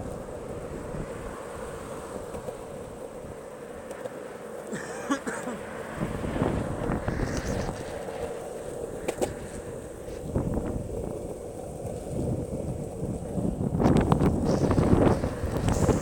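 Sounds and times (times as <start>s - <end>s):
wind buffeting microphone: 0.0s - 3.5s, 5.9s - 16.0s
skateboard wheels rolling on asphalt: 0.0s - 16.0s.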